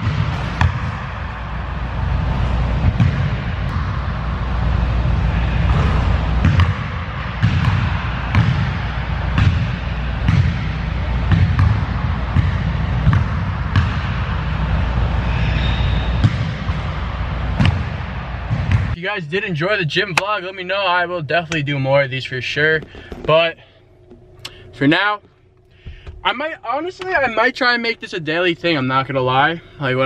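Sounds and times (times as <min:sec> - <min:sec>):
steady low hum: 0:00.0 - 0:30.0
basketball bouncing on wooden floor: 0:05.7 - 0:08.7, 0:11.3 - 0:14.1.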